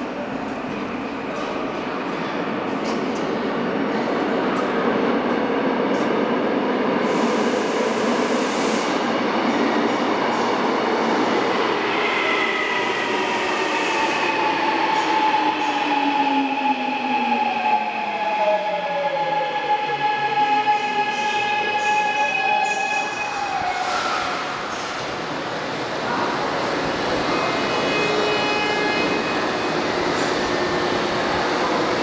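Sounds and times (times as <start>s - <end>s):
train wheels rushing on rail: 22.6s - 32.0s.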